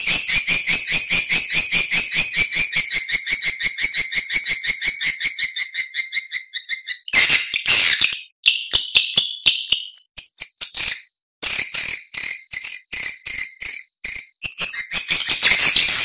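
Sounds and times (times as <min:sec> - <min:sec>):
rapid rattling trill of chirps: 0:00.0 - 0:08.1, 0:11.5 - 0:16.0
loud harsh chirping call: 0:00.0 - 0:08.3, 0:14.4 - 0:16.0.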